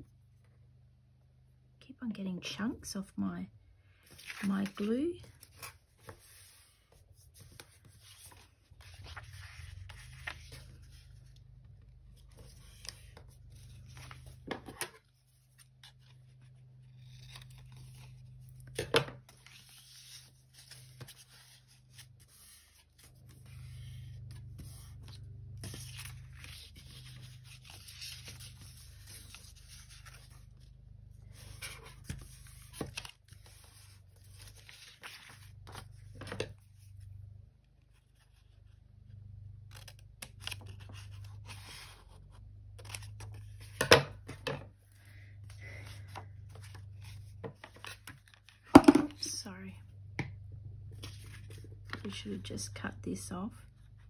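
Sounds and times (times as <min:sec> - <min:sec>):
paper rustling and creasing: 0:04.0 - 0:37.0, 0:39.7 - 0:43.8, 0:44.8 - 0:48.8, 0:50.9 - 0:52.2.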